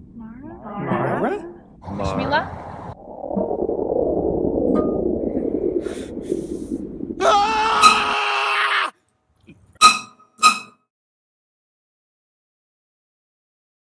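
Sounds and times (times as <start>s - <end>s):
loud rushing swell: 2.6s - 7.2s
wavering voice-like cry: 7.2s - 8.9s.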